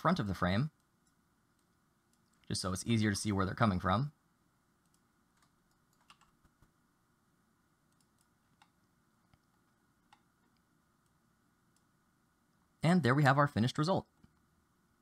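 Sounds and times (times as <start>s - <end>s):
mouse and keyboard clicks: 4.9s - 6.7s.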